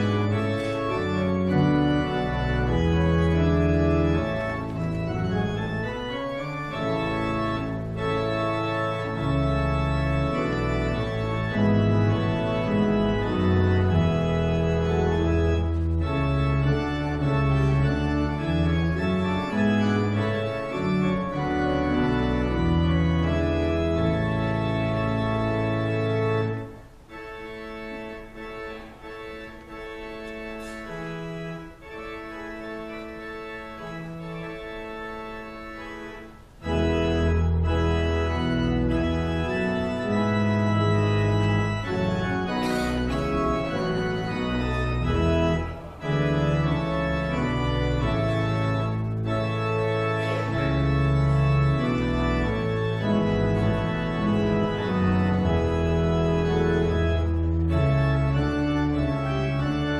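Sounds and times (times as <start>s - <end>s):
deep organ pedal bass notes: 0.0s - 59.9s
pipe organ chords: 0.0s - 59.9s.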